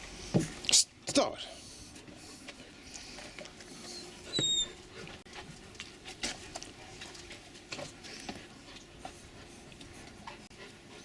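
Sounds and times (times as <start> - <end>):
puppy whining: 3.8 - 5.2.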